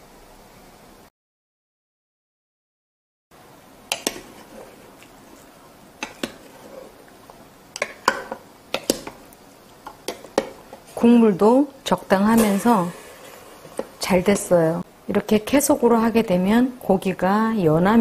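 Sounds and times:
wooden spatula scraping a pot: 0:03.9 - 0:07.0.

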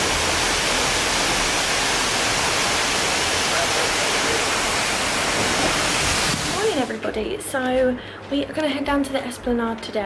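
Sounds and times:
steady rushing noise: 0:00.0 - 0:07.0.

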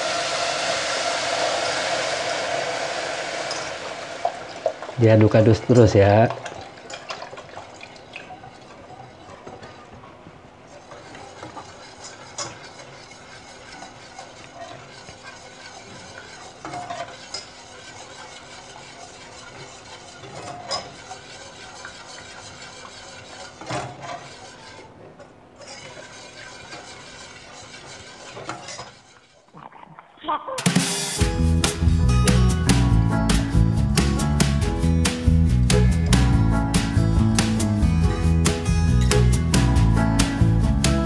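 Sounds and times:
whisk swishing in sauce: 0:03.4 - 0:29.5
whisk clinking against pan: 0:05.0 - 0:24.9, 0:25.6 - 0:29.4.

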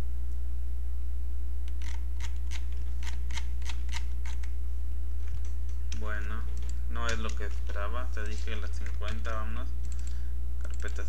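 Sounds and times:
low electrical hum: 0:00.0 - 0:11.0
computer mouse clicks: 0:01.7 - 0:04.5, 0:05.3 - 0:11.0.

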